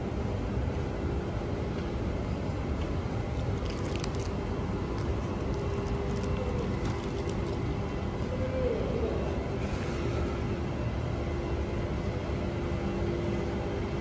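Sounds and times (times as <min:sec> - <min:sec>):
electric train rumble and hum: 0:00.0 - 0:14.0.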